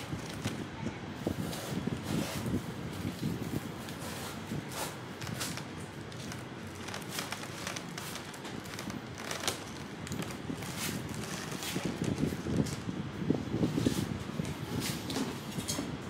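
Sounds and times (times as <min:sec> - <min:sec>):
foam net sleeves rustling: 0:00.0 - 0:13.0
plastic container crinkling: 0:05.2 - 0:12.8.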